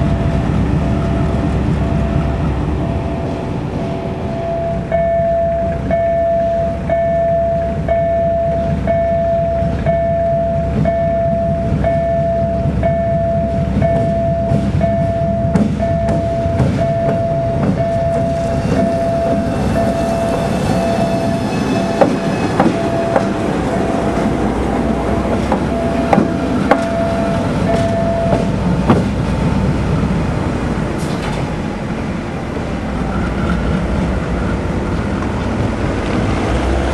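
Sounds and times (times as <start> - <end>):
diesel locomotive engine rumble: 0.0 - 36.9
electronic warning beep: 1.8 - 24.0, 25.6 - 28.5.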